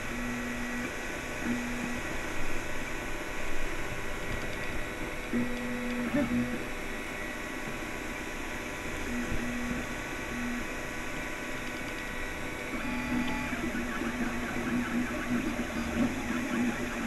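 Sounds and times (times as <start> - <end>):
cooling fans hissing: 12.4 - 17.0
stepper motors whining: 12.7 - 17.0.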